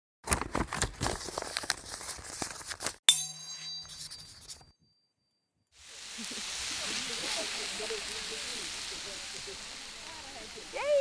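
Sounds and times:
bright chime hit: 3.1 - 4.6.

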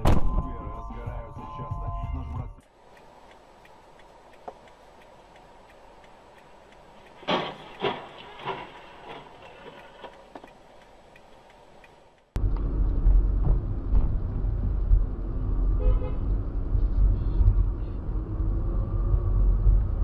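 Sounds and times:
car driving rumble: 0.0 - 20.0
faint clicks: 2.6 - 12.4
car horn toot: 15.8 - 16.3.

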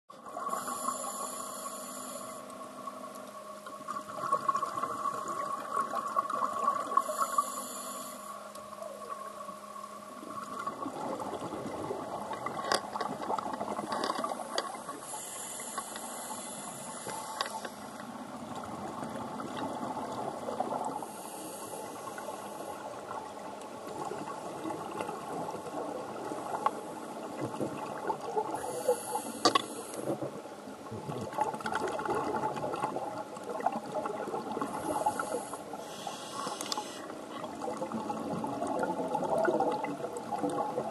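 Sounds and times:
steady hum: 0.2 - 31.5, 32.2 - 40.9
exhaled air bubbling: 3.8 - 7.2, 10.1 - 15.1, 21.9 - 40.9
scuba regulator hissing: 34.9 - 37.1.

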